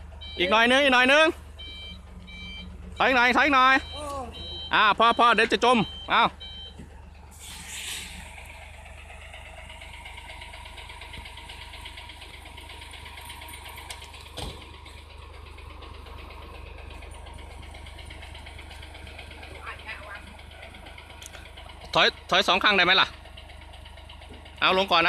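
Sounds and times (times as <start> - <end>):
diesel truck engine idling: 0.0 - 25.0
short hiss: 7.3 - 8.3.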